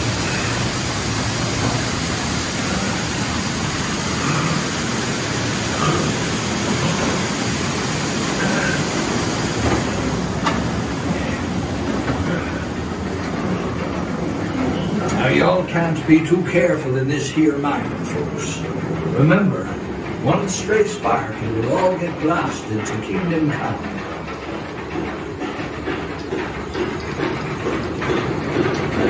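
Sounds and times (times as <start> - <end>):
hiss: 0.0 - 13.0
train cars rumbling on track: 0.0 - 29.0.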